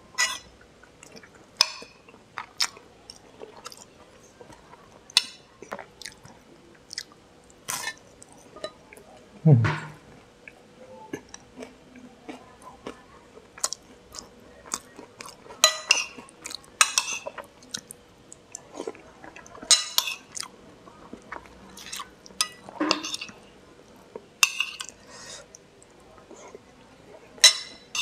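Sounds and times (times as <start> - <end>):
person chewing: 5.6 - 6.3, 6.9 - 8.4, 13.6 - 15.5.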